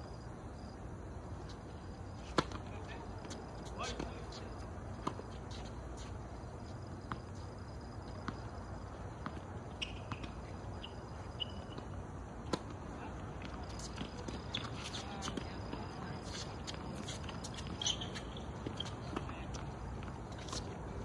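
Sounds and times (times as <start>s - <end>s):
high squeaks: 9.7s - 11.8s, 16.2s - 19.2s.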